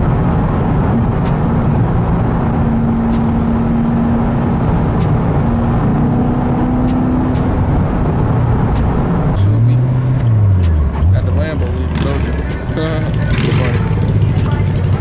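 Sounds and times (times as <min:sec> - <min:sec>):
car engine drone: 0:00.0 - 0:15.0
road and tyre noise: 0:00.0 - 0:15.0.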